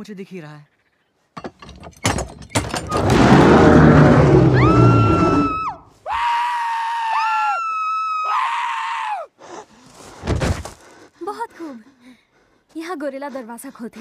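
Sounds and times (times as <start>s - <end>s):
thuds on wooden gate: 1.4s - 3.6s
gorilla roaring: 2.9s - 5.7s
high held screams: 3.1s - 9.3s.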